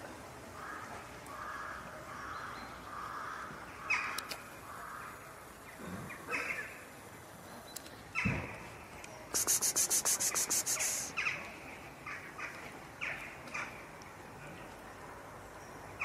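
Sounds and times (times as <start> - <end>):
crows cawing: 0.6 - 5.2
fast high-pitched clicking rattle: 9.4 - 11.1.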